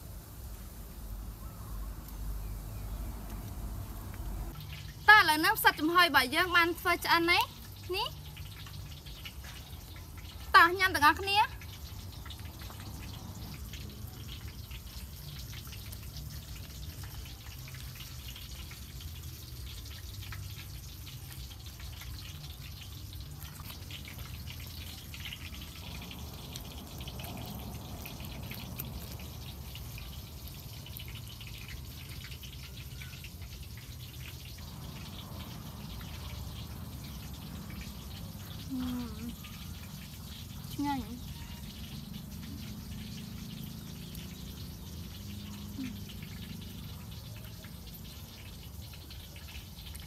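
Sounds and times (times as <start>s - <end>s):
faint small clicks and ticks: 11.5s - 40.9s.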